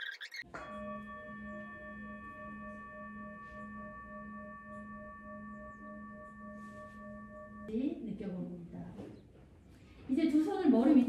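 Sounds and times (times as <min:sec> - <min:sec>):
singing bowl ringing: 0:00.4 - 0:07.8.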